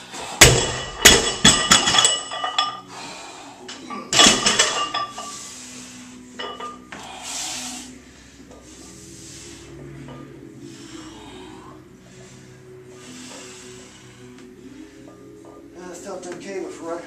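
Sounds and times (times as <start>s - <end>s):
heavy breathing: 2.6s - 4.0s, 5.0s - 15.7s.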